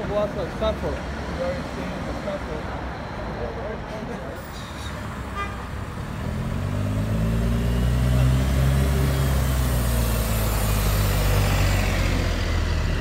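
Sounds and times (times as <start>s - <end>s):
road noise: 0.0s - 13.0s
vehicle engine droning: 4.6s - 13.0s.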